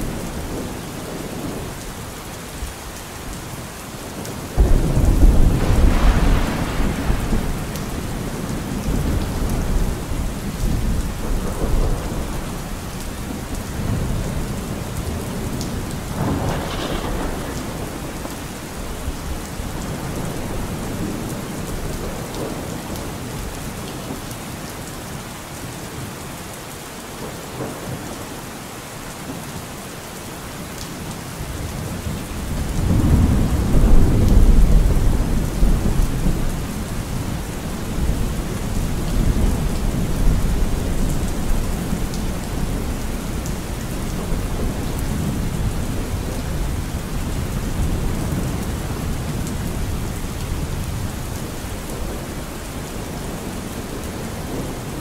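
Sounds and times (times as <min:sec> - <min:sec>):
steady rain: 0:00.0 - 0:55.0
rolling thunder: 0:04.6 - 0:22.8, 0:31.6 - 0:52.3.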